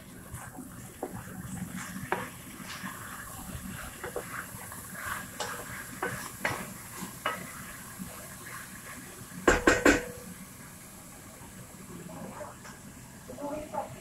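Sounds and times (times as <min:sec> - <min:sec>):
wooden spatula scraping pot: 0:00.4 - 0:09.0
loud sharp knocks: 0:09.5 - 0:10.1.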